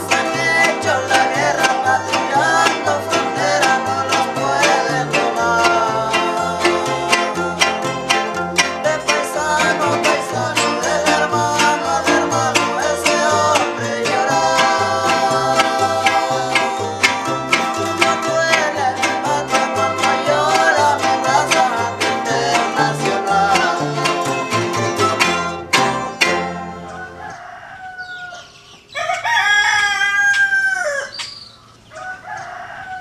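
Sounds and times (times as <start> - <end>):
plucked-string music with bass: 0.0 - 27.2
chicken clucking: 0.0 - 33.0
rooster crowing: 26.6 - 31.2, 31.9 - 33.0.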